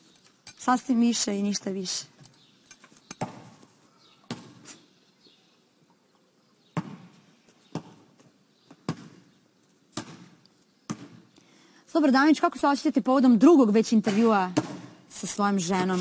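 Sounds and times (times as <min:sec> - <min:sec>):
basketball bouncing on paving: 0:04.3 - 0:04.6, 0:06.8 - 0:09.3, 0:10.0 - 0:11.3, 0:14.5 - 0:14.9.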